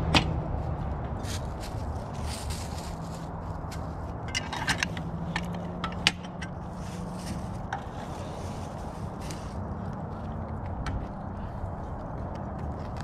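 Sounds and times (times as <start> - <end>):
steady low rumble: 0.0 - 13.0
objects being handled: 3.7 - 9.6.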